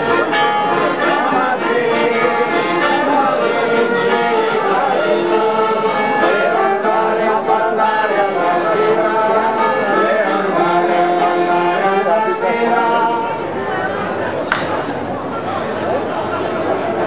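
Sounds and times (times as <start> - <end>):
men singing folk song together: 0.0 - 13.6.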